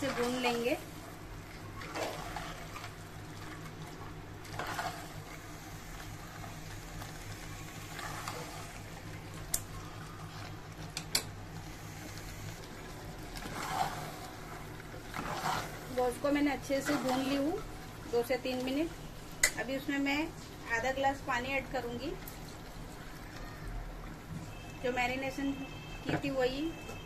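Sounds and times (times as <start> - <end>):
spoon scraping thick wet food: 13.3 - 17.7.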